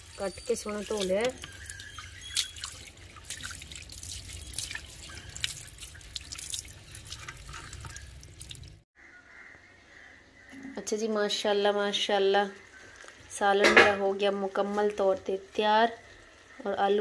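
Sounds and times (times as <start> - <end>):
tap water splashing into basin: 0.8 - 8.6.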